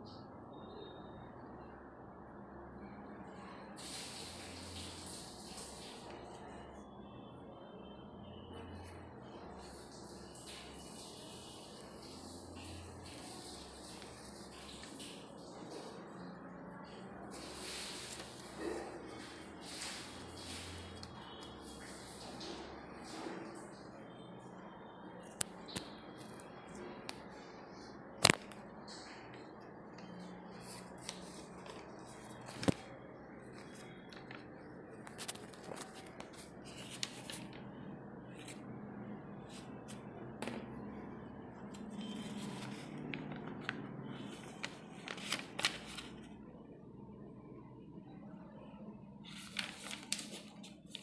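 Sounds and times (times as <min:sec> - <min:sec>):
paper rustling: 0:11.7 - 0:15.1, 0:16.8 - 0:22.0, 0:28.2 - 0:38.6, 0:41.7 - 0:46.3, 0:49.2 - 0:51.0.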